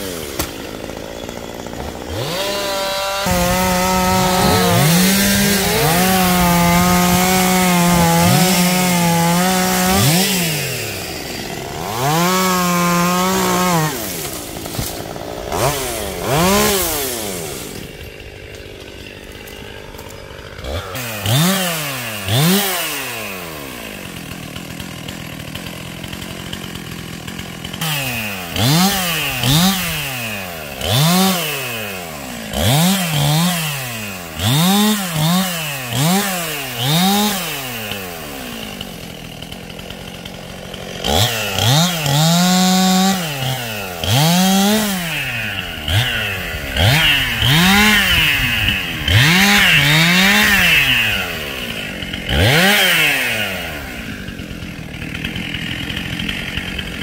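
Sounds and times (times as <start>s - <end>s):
chainsaw revving and cutting: 0.0s - 57.0s.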